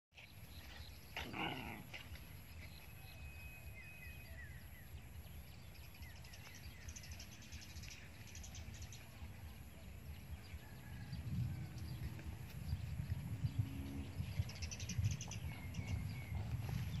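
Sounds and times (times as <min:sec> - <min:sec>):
puppies play-fighting: 0:00.2 - 0:02.9.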